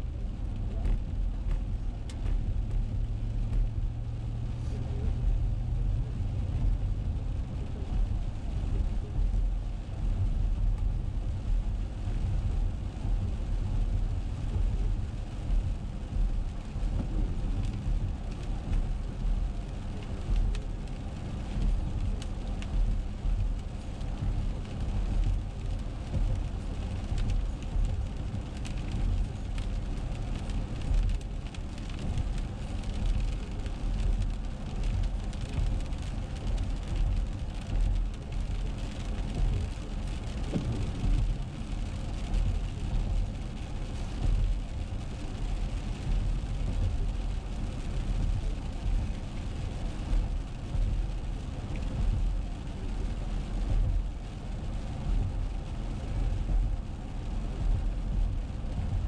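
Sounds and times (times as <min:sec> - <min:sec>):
engine and tyres on wet road: 0:00.0 - 0:59.0
raindrops ticking on windshield: 0:00.0 - 0:59.0.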